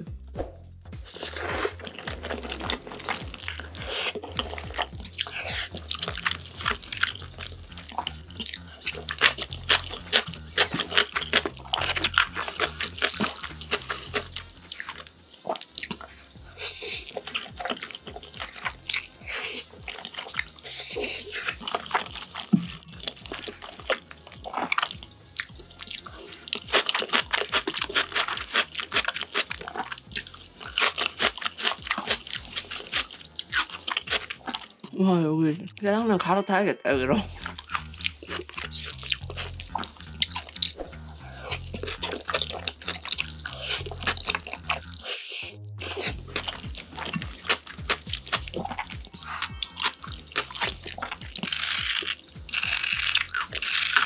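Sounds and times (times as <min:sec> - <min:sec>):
noodles slurped and chewed: 0:01.0 - 0:36.4, 0:37.0 - 0:54.0.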